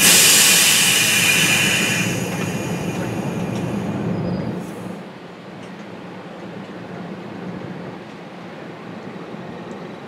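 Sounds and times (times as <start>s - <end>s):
loud air hiss from train: 0.0s - 5.0s
train low hum: 0.0s - 10.0s.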